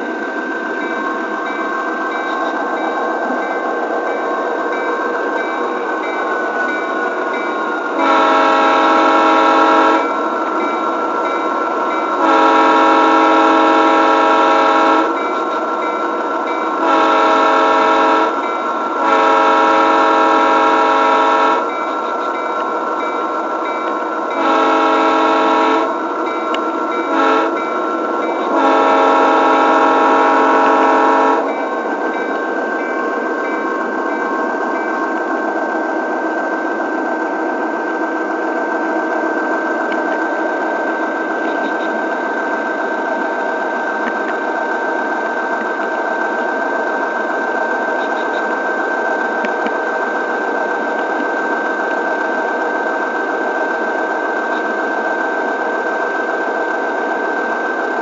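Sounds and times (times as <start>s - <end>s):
model locomotive air horn: 8.0s - 10.2s, 12.2s - 15.2s, 16.8s - 21.7s, 24.3s - 26.0s, 27.1s - 27.7s, 28.3s - 31.6s.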